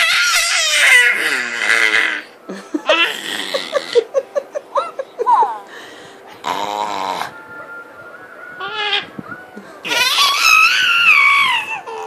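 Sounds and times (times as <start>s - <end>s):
baby laughing and squealing: 0.0s - 4.1s, 9.8s - 12.0s.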